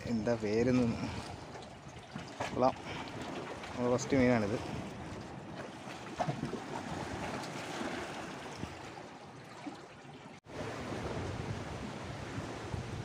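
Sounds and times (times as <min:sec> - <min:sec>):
sea waves washing against rocks: 0:00.1 - 0:09.3
wind on microphone: 0:10.5 - 0:13.0.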